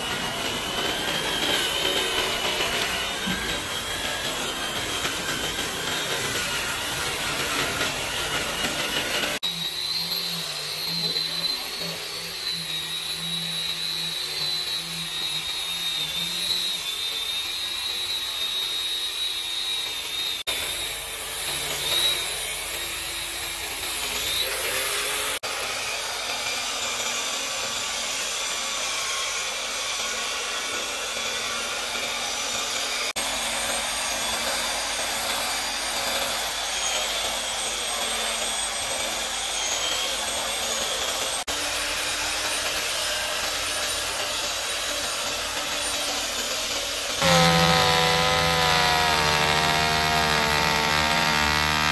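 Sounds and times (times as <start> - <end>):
disc sander whining: 0.0 - 25.4, 43.1 - 51.9
electric hand planer: 0.0 - 51.9
round-pad sander: 0.0 - 51.9.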